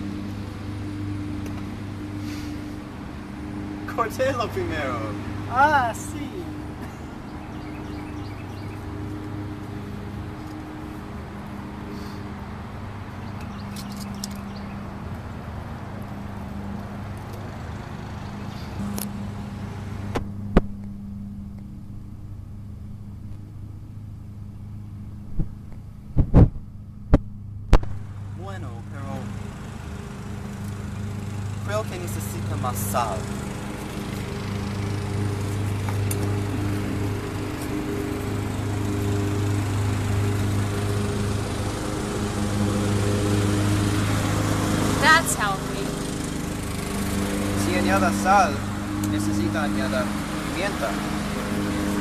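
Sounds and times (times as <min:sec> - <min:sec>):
lawn mower engine running: 0:00.0 - 0:26.2, 0:28.0 - 0:52.0
low machine hum: 0:00.0 - 0:52.0.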